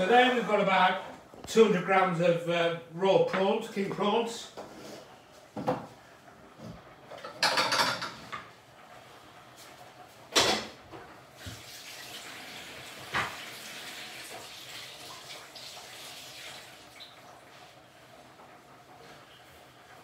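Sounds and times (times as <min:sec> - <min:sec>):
tap running into a sink: 0:11.4 - 0:12.3, 0:13.0 - 0:13.6.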